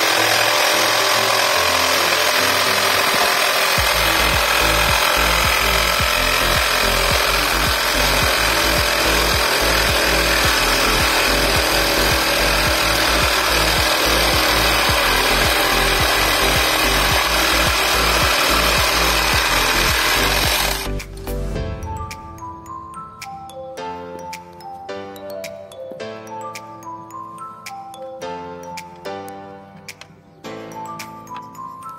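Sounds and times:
reciprocating saw cutting metal: 0:00.0 - 0:21.5.

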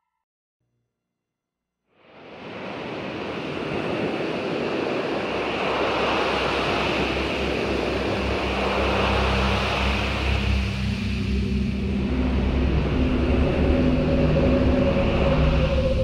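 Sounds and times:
low steady hum: 0:05.2 - 0:16.0.

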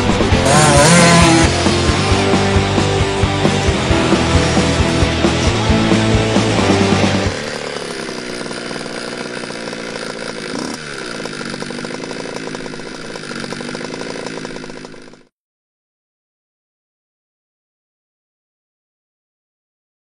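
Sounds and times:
rock music: 0:00.0 - 0:08.0
small motorcycle engine running: 0:00.0 - 0:15.3.

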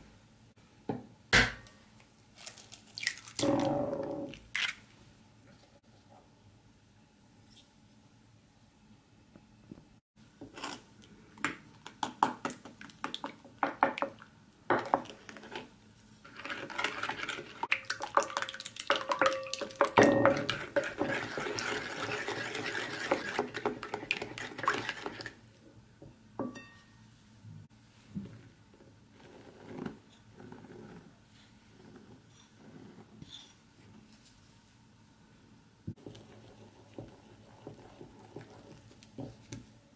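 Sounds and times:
spoon stirring egg in ceramic plate: 0:16.3 - 0:25.4.

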